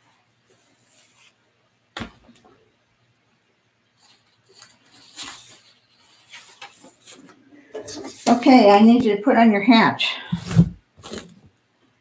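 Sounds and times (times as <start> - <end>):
rustling and handling noises: 0.3 - 2.6, 3.8 - 9.2, 10.3 - 11.6
book thumping down: 2.0 - 2.5, 10.3 - 11.5.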